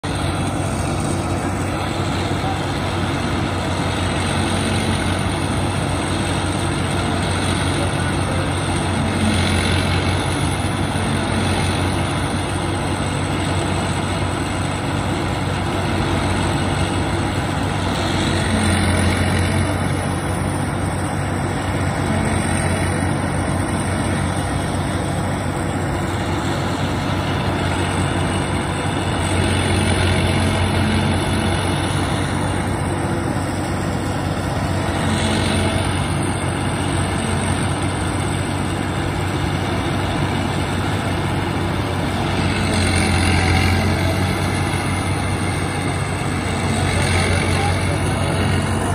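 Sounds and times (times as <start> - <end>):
forage harvester drone: 0.0 - 48.9
high machine whine: 0.0 - 48.9.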